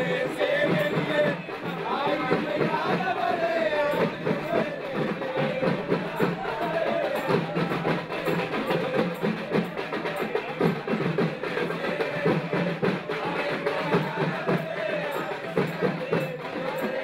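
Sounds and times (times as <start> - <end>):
rapid drum strokes: 0.0 - 17.0.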